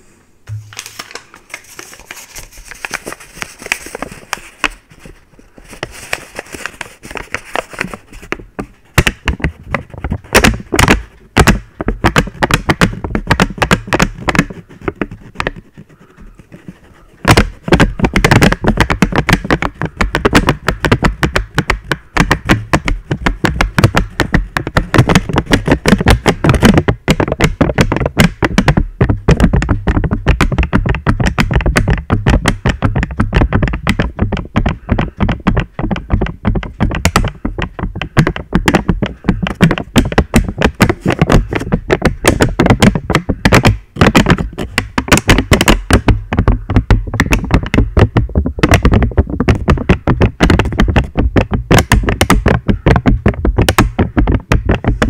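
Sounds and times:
paper crinkling against microphone: 0:00.5 - 0:08.8.

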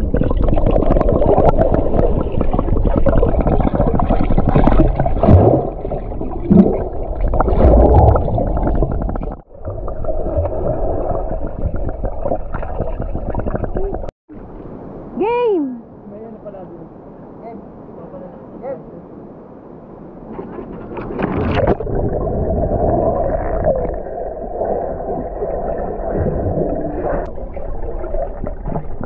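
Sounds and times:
gurgling bubbles: 0:00.0 - 0:14.1, 0:21.0 - 0:29.0
muffled underwater rumbling: 0:00.0 - 0:14.1, 0:20.2 - 0:29.0.

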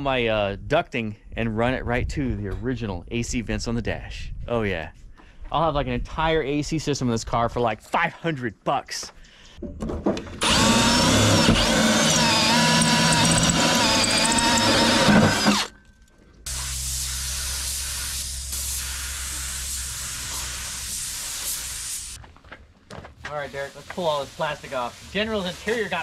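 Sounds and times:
power tool whining: 0:10.4 - 0:15.8.

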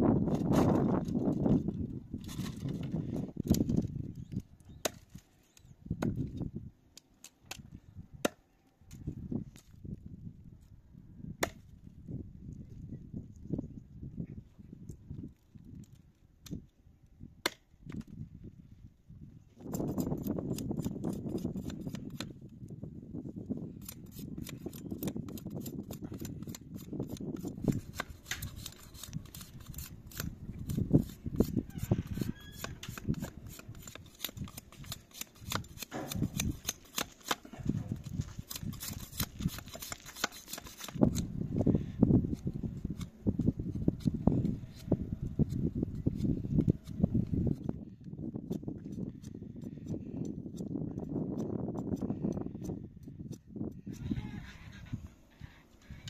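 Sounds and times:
knife splitting wooden sticks: 0:02.2 - 0:09.7, 0:11.4 - 0:11.7, 0:17.4 - 0:18.1, 0:19.6 - 0:22.5, 0:23.7 - 0:47.8.

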